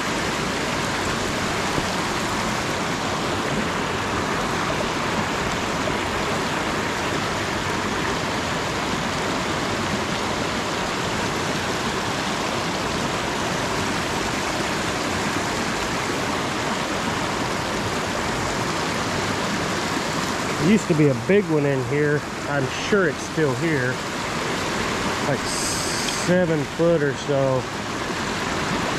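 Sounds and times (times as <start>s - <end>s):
river water rushing over rocks: 0.0s - 28.9s.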